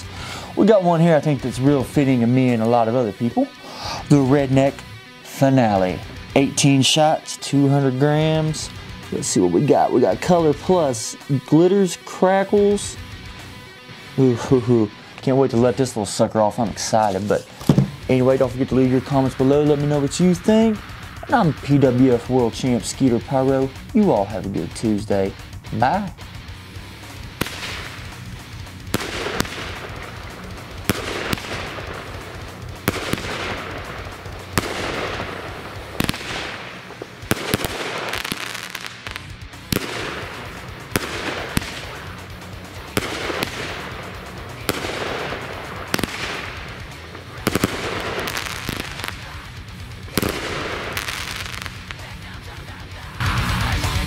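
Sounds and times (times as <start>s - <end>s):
fireworks cake reports: 0.0s - 26.4s, 27.2s - 54.0s
fireworks crackle: 14.1s - 26.1s, 27.0s - 54.0s.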